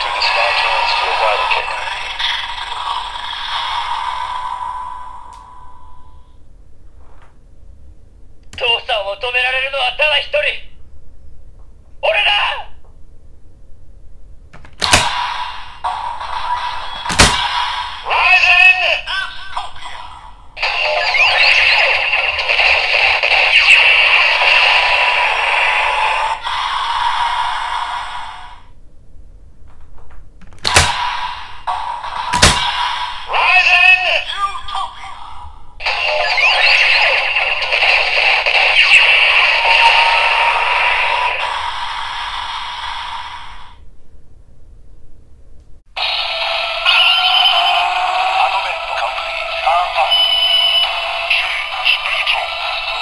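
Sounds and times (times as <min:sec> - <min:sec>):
electronic toy sound effect: 0:14.9 - 0:28.5, 0:35.8 - 0:43.7, 0:46.0 - 0:53.0.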